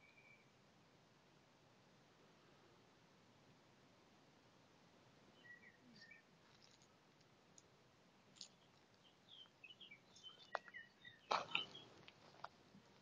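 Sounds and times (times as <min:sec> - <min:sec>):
footsteps on dry leaves and twigs: 0:10.0 - 0:13.0.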